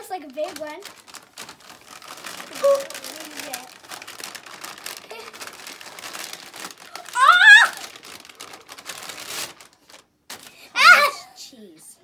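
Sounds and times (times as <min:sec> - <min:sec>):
paper bag crinkling: 0:00.0 - 0:10.7
child squealing: 0:06.9 - 0:07.9, 0:10.8 - 0:11.2.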